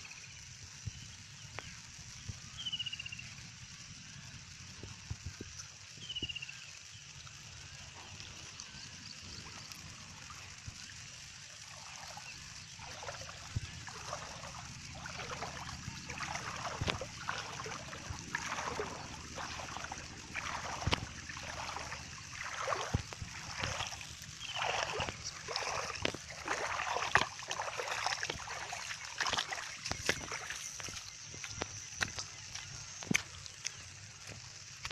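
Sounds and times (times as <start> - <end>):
footsteps wading through water: 7.7 - 34.9.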